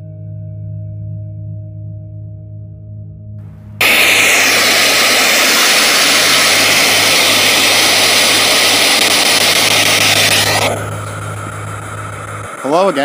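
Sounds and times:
low steady hum: 0.0s - 13.0s
loud radio static: 3.8s - 13.0s.

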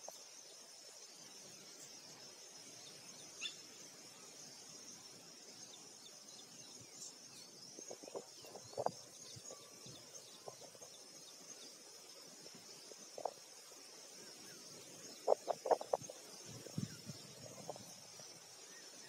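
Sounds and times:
high insect-like drone: 6.6s - 19.0s.

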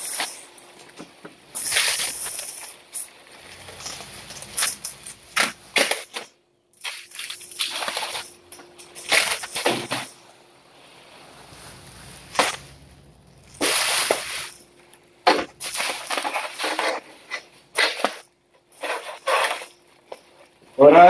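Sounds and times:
plastic spoiler rustling: 1.6s - 6.2s.

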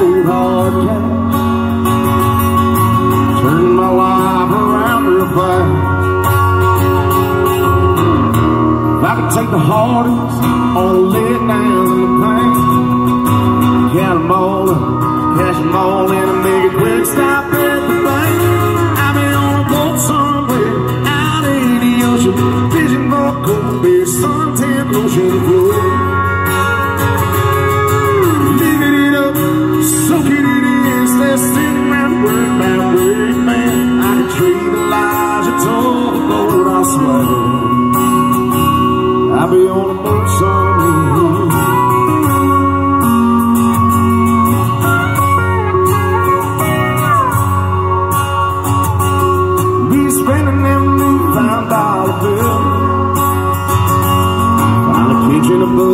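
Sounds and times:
acoustic guitar: 0.0s - 55.9s
country band playing: 0.0s - 55.9s
keyboard: 0.0s - 55.9s
low bass note: 53.5s - 55.9s.

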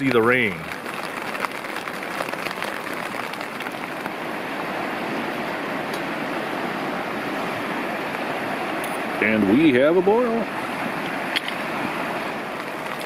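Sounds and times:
drops ticking: 0.0s - 4.2s
rain falling: 0.0s - 13.0s
river rushing: 0.0s - 13.0s.

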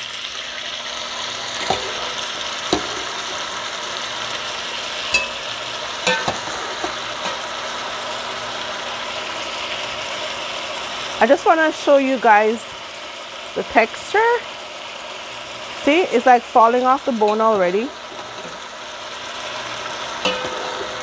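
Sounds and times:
meat sizzling in pot: 0.0s - 21.0s
metal spoon clinking on pot: 5.1s - 5.4s, 6.0s - 7.4s, 20.2s - 21.0s.

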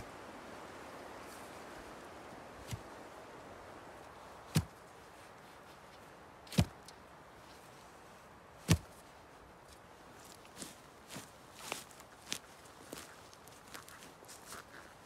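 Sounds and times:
hatchet hitting wooden stake: 4.5s - 4.7s, 8.7s - 8.9s.

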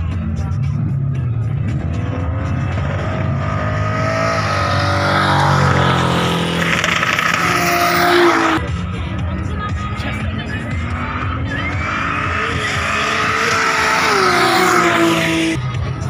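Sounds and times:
car engine revving hard: 1.8s - 8.6s, 11.0s - 15.6s
spinning tyres hissing: 2.6s - 8.6s.

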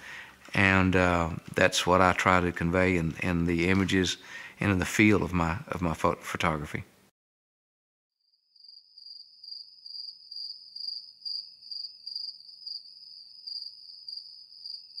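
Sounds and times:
high insect trill: 8.4s - 15.0s.

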